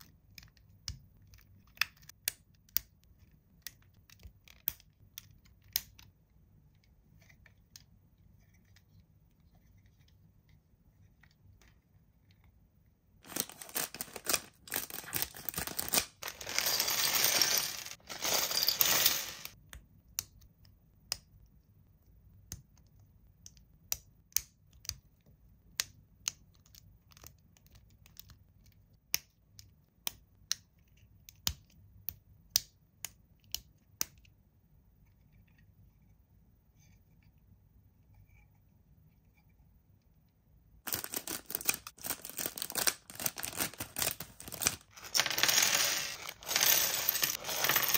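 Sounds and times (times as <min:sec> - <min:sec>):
packaging tearing and crinkling: 0:13.2 - 0:16.6, 0:40.9 - 0:45.1.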